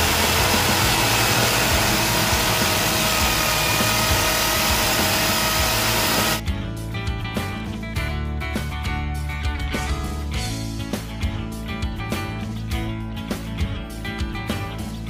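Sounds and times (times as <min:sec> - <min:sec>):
electric drill boring into concrete: 0:00.0 - 0:06.4.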